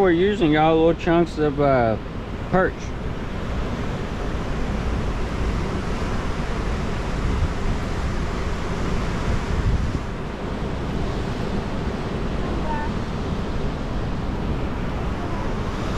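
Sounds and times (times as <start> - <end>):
river rushing against wall: 0.0 - 15.9
wind buffeting microphone: 0.0 - 15.9.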